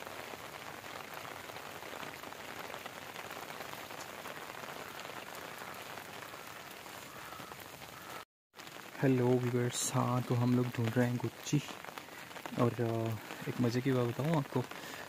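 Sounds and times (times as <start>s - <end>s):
steady rain falling: 0.0s - 15.0s.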